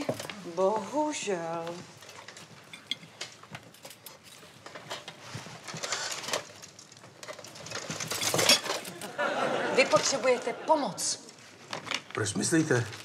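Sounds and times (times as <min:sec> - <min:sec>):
soft rustle: 0:00.0 - 0:08.4.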